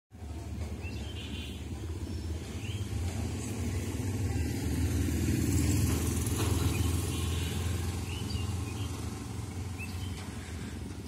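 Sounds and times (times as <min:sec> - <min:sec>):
bird chirping: 0:00.7 - 0:04.0, 0:06.4 - 0:10.5.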